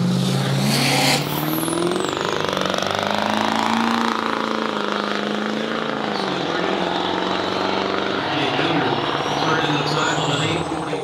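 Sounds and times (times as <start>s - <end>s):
pickup engine revving: 0.0s - 11.0s.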